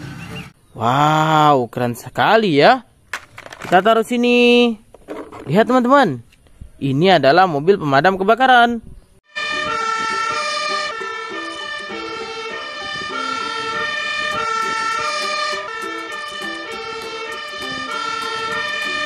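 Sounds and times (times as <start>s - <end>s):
fire engine siren: 9.3s - 19.0s.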